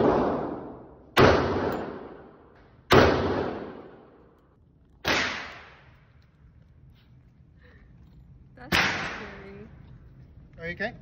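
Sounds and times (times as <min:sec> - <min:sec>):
gunshots echoing indoors: 0:00.0 - 0:04.4, 0:05.0 - 0:06.0.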